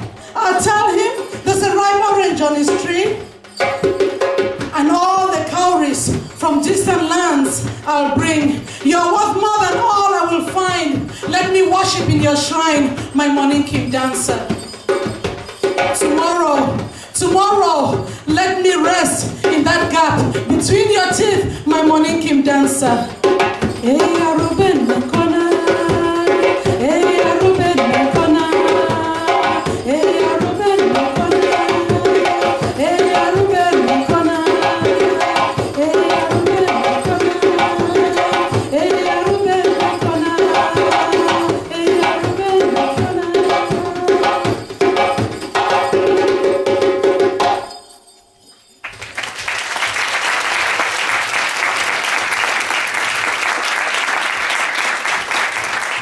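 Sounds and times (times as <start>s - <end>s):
djembe hand drums: 0.0s - 47.7s
audience applauding: 48.8s - 56.0s.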